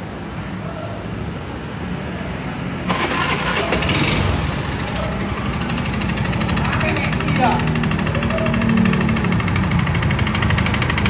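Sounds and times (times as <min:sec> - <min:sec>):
scooter engine running: 0:02.9 - 0:11.0.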